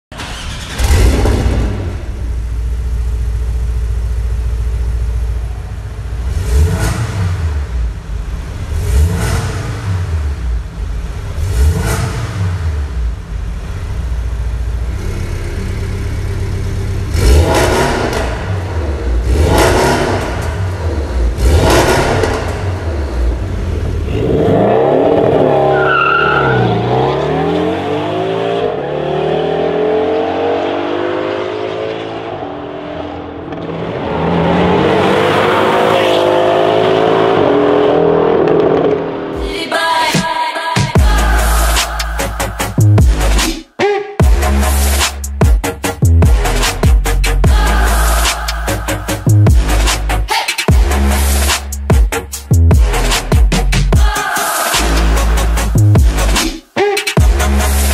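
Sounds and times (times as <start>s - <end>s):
sports car engine revving: 0.2s - 39.4s
car accelerating away: 8.6s - 39.4s.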